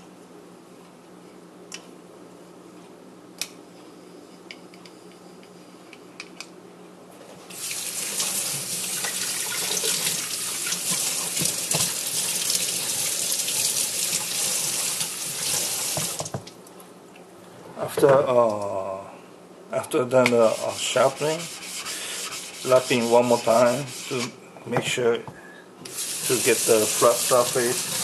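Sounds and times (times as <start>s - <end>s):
tap water running and splashing: 7.5s - 16.5s, 25.9s - 28.0s.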